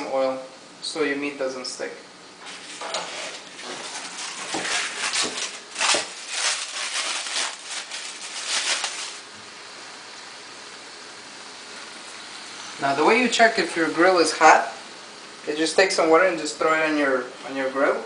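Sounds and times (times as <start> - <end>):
rustling and handling noises: 2.4 - 9.4
oil sizzling: 2.4 - 12.8.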